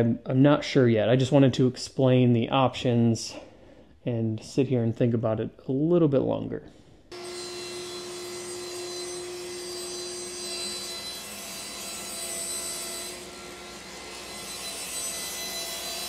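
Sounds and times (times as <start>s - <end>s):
power tool motor whine: 7.2s - 9.6s.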